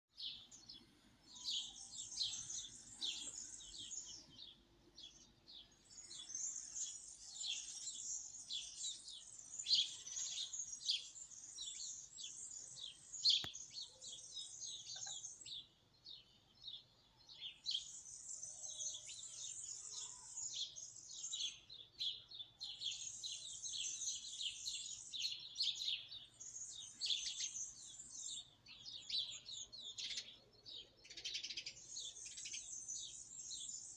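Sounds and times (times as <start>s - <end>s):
birds singing high chirps: 0.1s - 33.9s.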